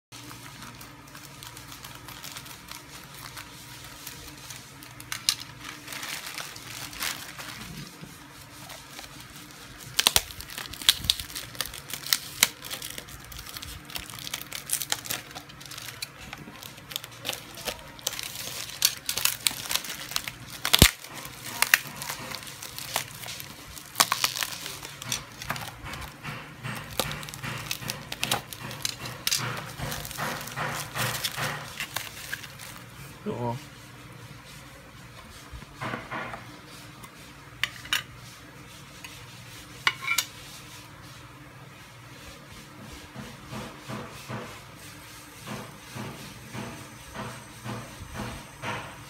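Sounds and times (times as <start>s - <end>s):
plastic packaging crinkling: 0.2s - 33.2s
scissors cutting plastic: 1.1s - 8.0s, 8.6s - 32.9s.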